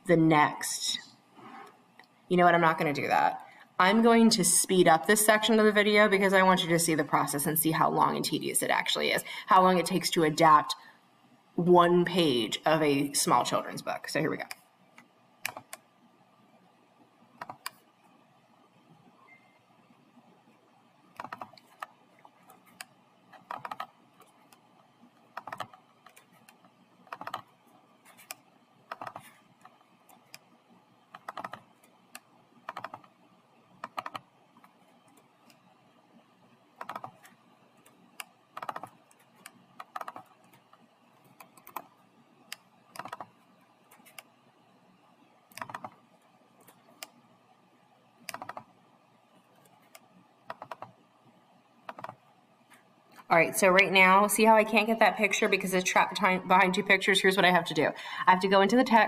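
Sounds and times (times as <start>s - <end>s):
computer keyboard typing: 15.4s - 15.8s, 17.4s - 17.8s, 21.1s - 30.5s, 31.1s - 33.2s, 33.8s - 35.6s, 36.8s - 44.3s, 45.5s - 46.0s, 48.2s - 48.8s, 49.6s - 51.0s, 51.8s - 52.2s.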